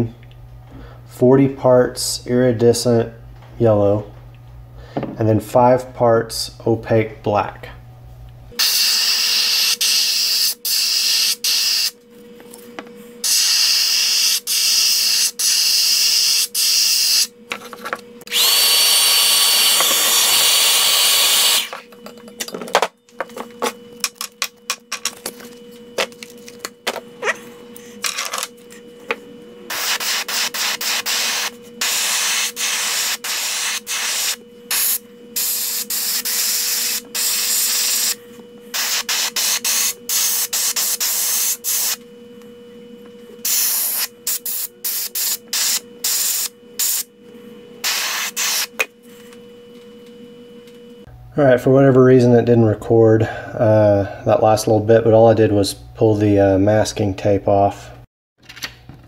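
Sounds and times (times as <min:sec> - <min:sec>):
steady hum: 0:00.0 - 0:58.1
airbrush hissing bursts: 0:08.6 - 0:11.9, 0:13.2 - 0:17.3, 0:29.7 - 0:42.0, 0:43.4 - 0:47.1, 0:47.8 - 0:48.7.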